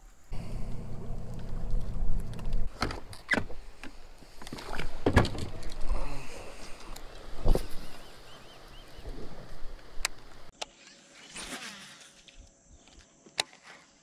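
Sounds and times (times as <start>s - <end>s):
boat motor humming: 0.3s - 2.7s.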